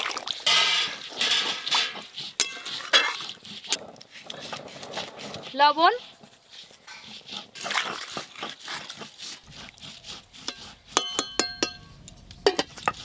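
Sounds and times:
stirring scrapes and knocks: 0:00.0 - 0:13.0
metal spatula clinking on pot: 0:00.5 - 0:03.2, 0:10.5 - 0:13.0.

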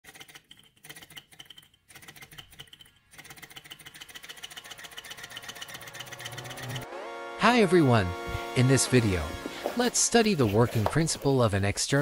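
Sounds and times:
small engine rapid ticking: 0:00.1 - 0:06.9.

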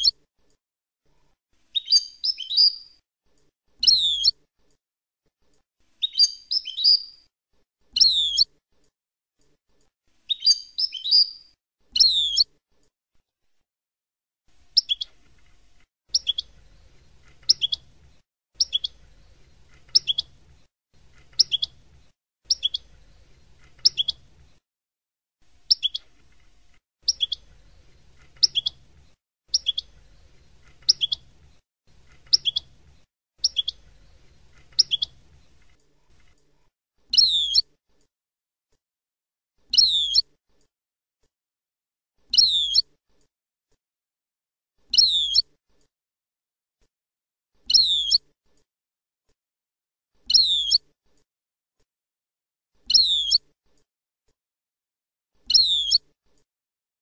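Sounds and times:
faint low hum: 0:14.6 - 0:24.6, 0:25.5 - 0:36.6.

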